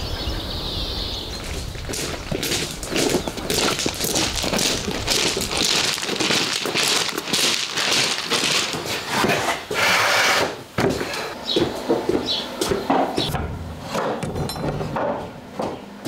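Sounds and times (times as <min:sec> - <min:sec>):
footsteps crunching on gravel: 0:01.3 - 0:09.6, 0:10.8 - 0:13.3
wooden pallet scraping on concrete: 0:01.5 - 0:11.4.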